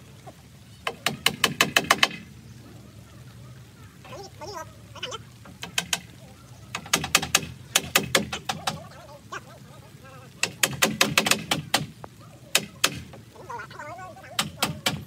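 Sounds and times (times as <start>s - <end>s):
hammer driving nails into wood: 1.0s - 2.2s, 6.8s - 8.6s, 10.4s - 11.9s.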